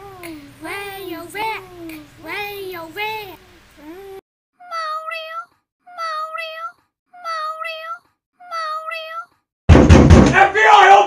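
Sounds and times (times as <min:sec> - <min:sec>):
cat meowing: 0:04.6 - 0:09.4.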